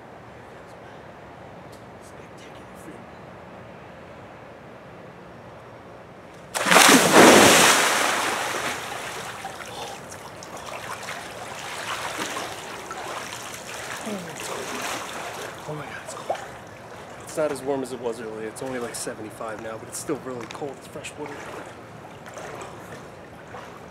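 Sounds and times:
water sloshing and lapping: 0:06.4 - 0:23.9
person splashing into pool: 0:06.5 - 0:17.3, 0:21.2 - 0:23.9.

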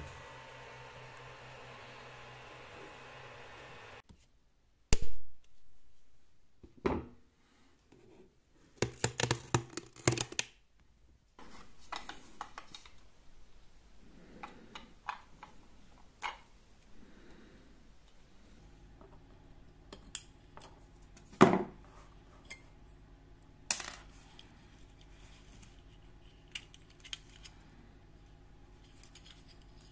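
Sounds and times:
faint steady hiss: 0:00.0 - 0:08.8, 0:10.7 - 0:29.9.

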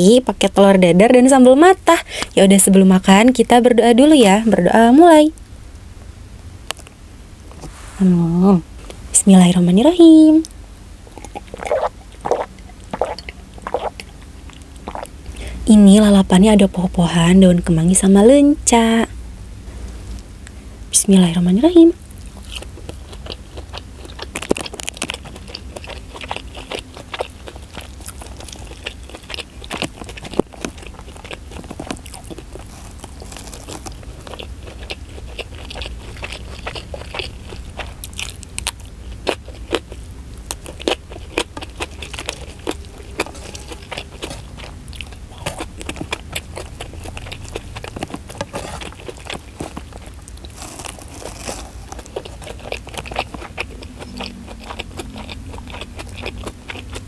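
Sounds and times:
chewing and crunching: 0:10.2 - 0:16.1, 0:21.7 - 0:57.0
wet mouth clicks: 0:10.4 - 0:15.2.

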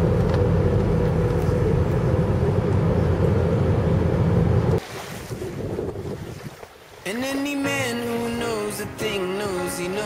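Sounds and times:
airliner cabin drone: 0:00.0 - 0:04.8.

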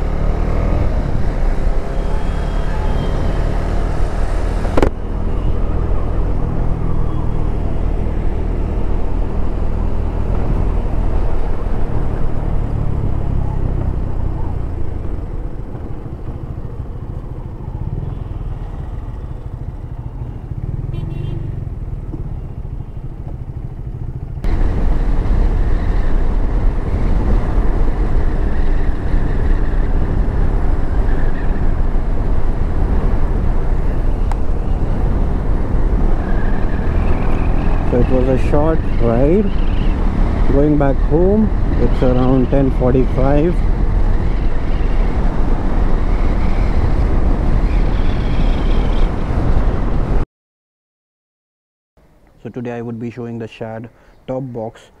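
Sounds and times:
wind rushing: 0:24.4 - 0:42.7, 0:43.6 - 0:50.2.

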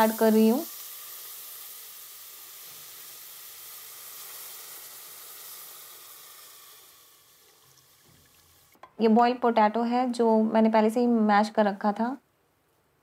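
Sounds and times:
milk sizzling in hot butter: 0:00.0 - 0:08.8.

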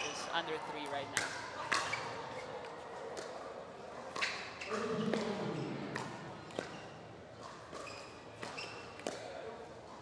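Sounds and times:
paddles hitting plastic ball: 0:05.9 - 0:06.8, 0:07.7 - 0:09.3.

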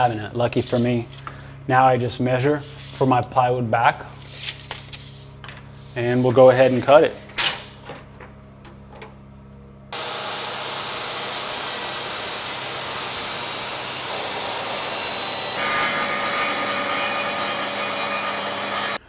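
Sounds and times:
saw cutting plywood: 0:09.9 - 0:19.0.

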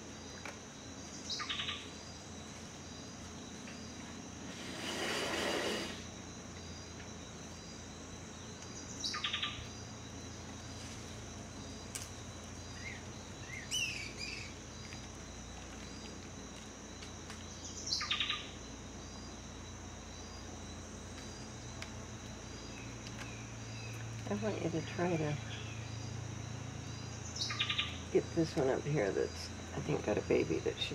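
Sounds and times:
high insect drone: 0:00.0 - 0:30.9
birds calling: 0:12.5 - 0:15.1, 0:27.0 - 0:28.6.

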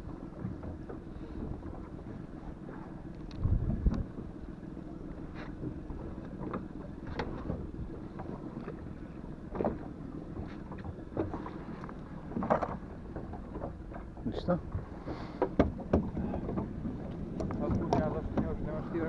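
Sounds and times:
waves lapping against boat hull: 0:00.0 - 0:19.0
wind buffeting microphone: 0:03.2 - 0:04.5.

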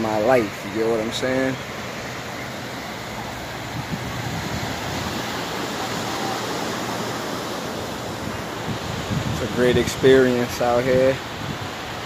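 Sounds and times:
surf breaking on beach: 0:00.0 - 0:12.0
wind on microphone: 0:03.0 - 0:12.0.

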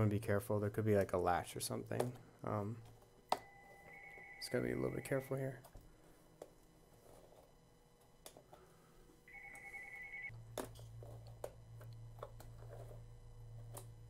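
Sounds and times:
low steady hum: 0:00.0 - 0:14.0
electronic ring-like tone: 0:03.4 - 0:05.4, 0:09.3 - 0:10.3.

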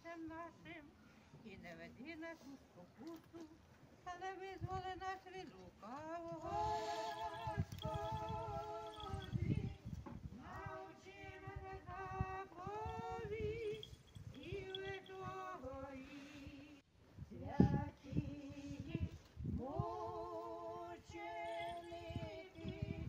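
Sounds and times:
unaccompanied funeral chant: 0:05.8 - 0:23.0.

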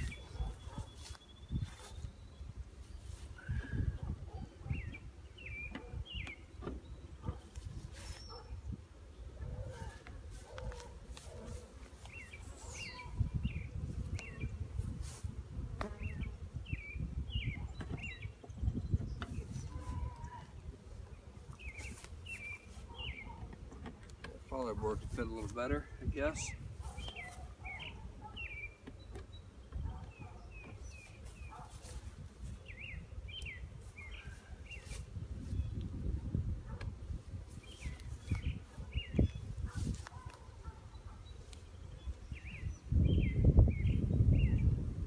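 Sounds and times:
honeybees buzzing: 0:00.0 - 0:25.1, 0:26.1 - 0:44.8
small birds chirping: 0:00.0 - 0:44.8
bird chirping: 0:04.6 - 0:07.4, 0:12.0 - 0:14.6, 0:21.1 - 0:23.4, 0:26.5 - 0:31.8.

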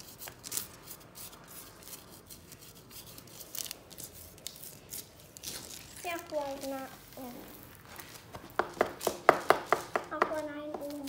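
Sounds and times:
sharp scrapes: 0:00.0 - 0:07.6
sand rustling on paper: 0:00.0 - 0:11.0.

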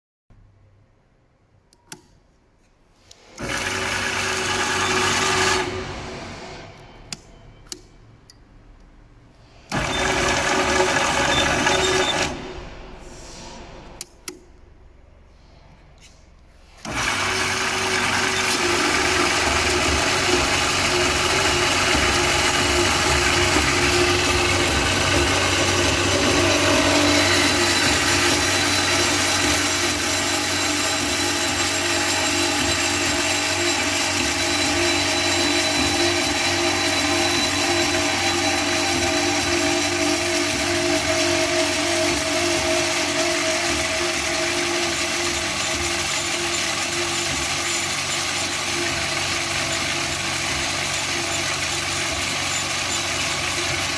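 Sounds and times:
band saw motor running: 0:03.4 - 0:06.2, 0:09.7 - 0:12.4, 0:16.8 - 0:53.9.

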